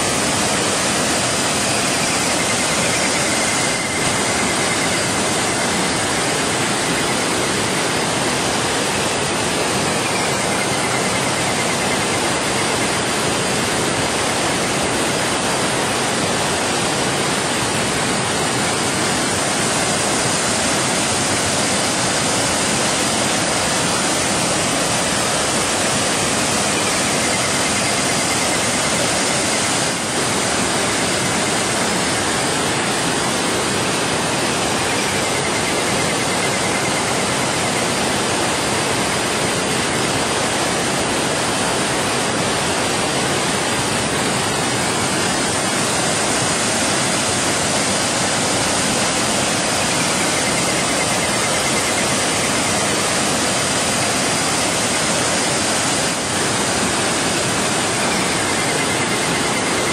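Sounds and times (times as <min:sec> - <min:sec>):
stream water rushing over rocks: 0:00.0 - 0:59.9.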